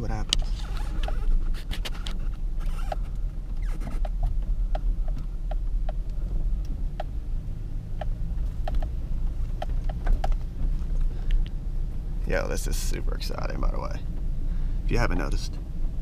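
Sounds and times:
truck engine and road rumble: 0:00.0 - 0:16.0
short squeaks or ticks: 0:00.6 - 0:04.3.

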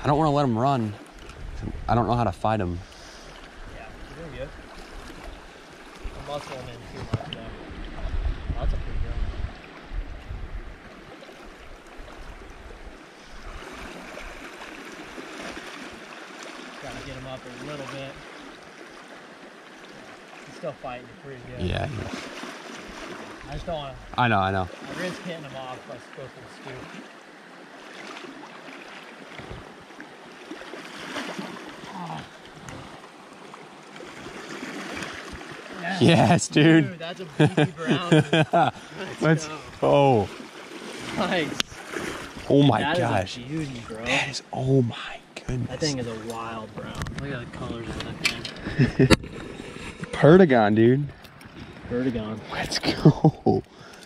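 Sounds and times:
shallow river flowing: 0:00.0 - 0:54.0.

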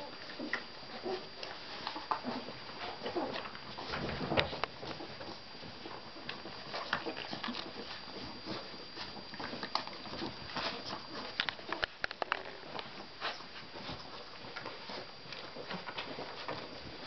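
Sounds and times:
puppies suckling: 0:00.0 - 0:17.0.

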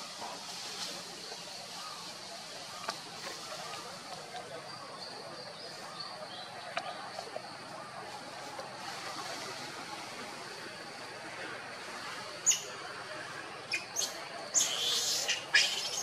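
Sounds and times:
monkeys scrambling along branches: 0:00.0 - 0:04.8, 0:05.7 - 0:12.7, 0:13.7 - 0:16.0
monkeys squealing: 0:14.6 - 0:16.0.

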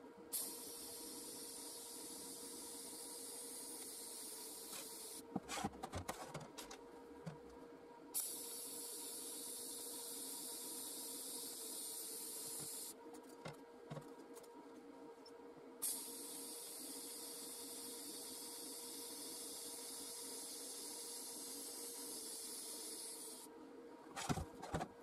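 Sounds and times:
welding arc hissing: 0:00.4 - 0:05.3, 0:08.2 - 0:13.0, 0:15.8 - 0:23.5.

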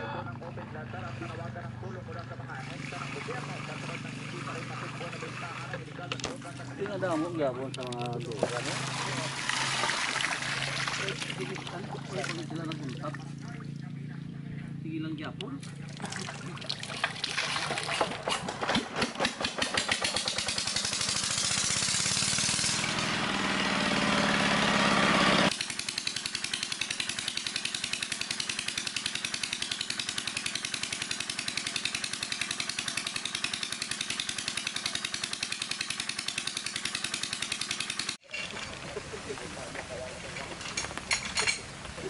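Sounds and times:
diesel engine running: 0:19.4 - 0:38.2.

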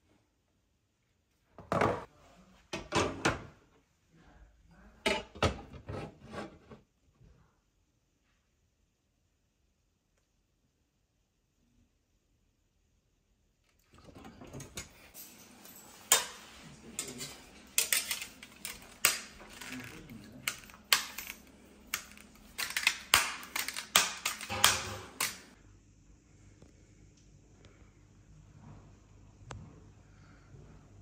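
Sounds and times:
metal and plastic parts clicking: 0:17.0 - 0:25.5.

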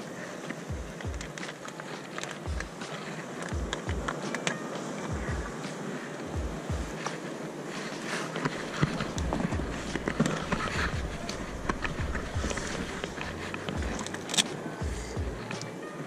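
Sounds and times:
plastic box handling: 0:07.9 - 0:14.6
low rumble: 0:09.1 - 0:15.5.

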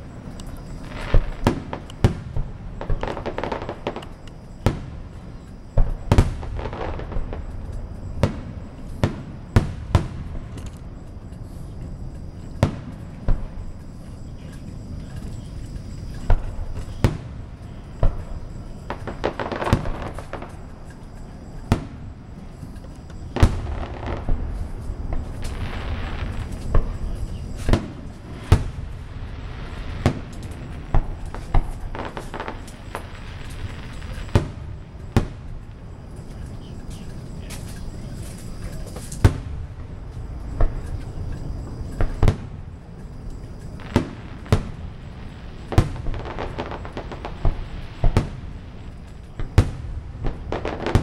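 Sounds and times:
fireworks booming: 0:00.0 - 0:51.0
rushing crackling noise: 0:22.5 - 0:49.5.

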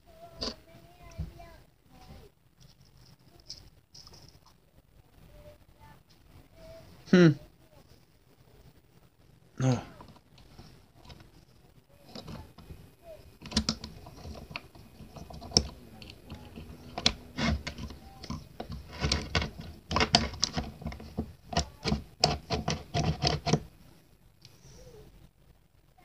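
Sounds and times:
small parts clicking and clacking: 0:13.3 - 0:23.7.

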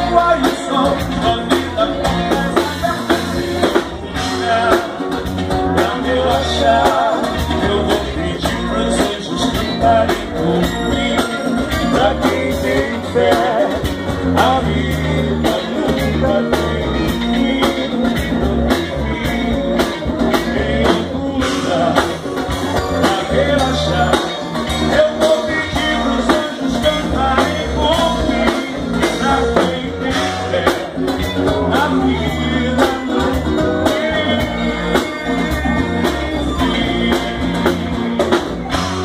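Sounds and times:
acoustic guitar: 0:00.0 - 0:39.0
electric guitar: 0:00.0 - 0:39.0
person singing: 0:00.0 - 0:39.0.

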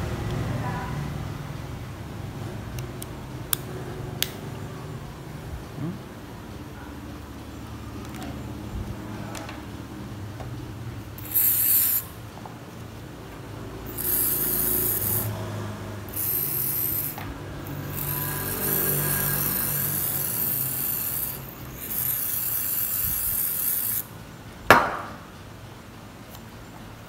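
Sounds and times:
aerosol spray can hissing: 0:11.2 - 0:12.1, 0:13.9 - 0:15.3, 0:16.1 - 0:24.1
sharp knock: 0:24.7 - 0:25.2.

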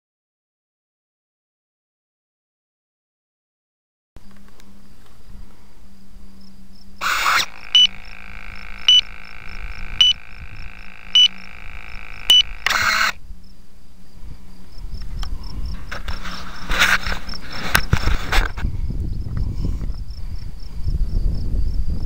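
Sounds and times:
faint electrical hum: 0:04.2 - 0:19.1
light regular ticking: 0:07.0 - 0:13.2
servo motor whirring: 0:07.0 - 0:13.2, 0:15.8 - 0:18.6
servo buzzing with blips: 0:07.0 - 0:13.3, 0:15.9 - 0:18.6.

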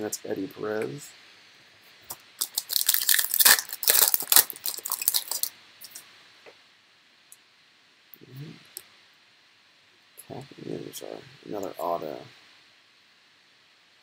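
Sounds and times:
foil wrapper tearing and crinkling: 0:02.4 - 0:06.0.

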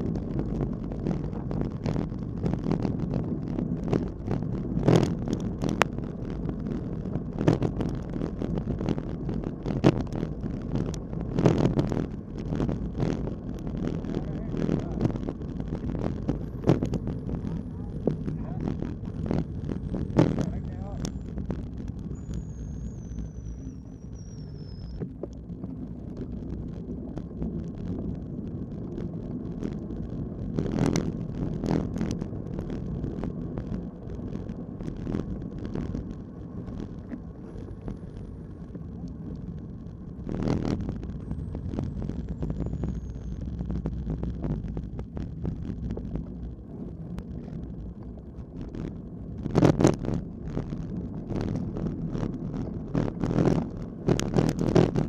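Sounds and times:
bicycle knocks and rattles: 0:00.0 - 0:23.1
wind rushing on microphone: 0:00.0 - 0:55.0.

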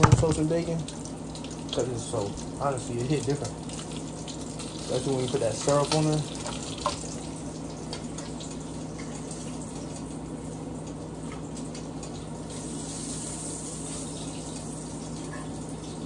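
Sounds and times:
faucet running into a sink: 0:00.0 - 0:10.0
low steady hum: 0:00.0 - 0:16.0.

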